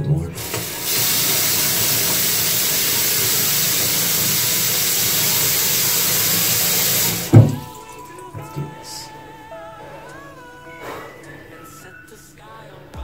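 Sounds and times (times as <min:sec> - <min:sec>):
tap water running into basin: 0:00.0 - 0:08.7.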